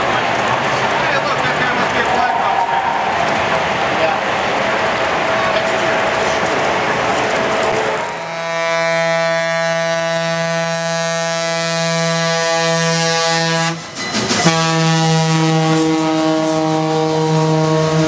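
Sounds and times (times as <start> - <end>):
locomotive horn chime: 8.2 - 18.0.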